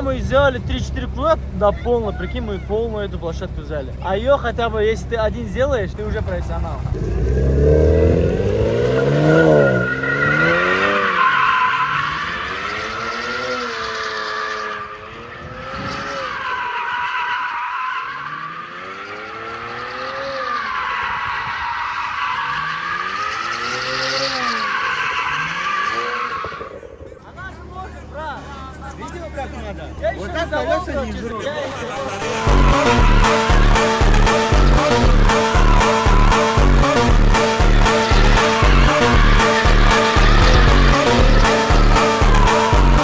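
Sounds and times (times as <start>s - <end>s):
car engine revving: 3.1s - 31.0s, 31.8s - 43.0s
tyres squealing: 8.9s - 27.0s, 32.0s - 43.0s.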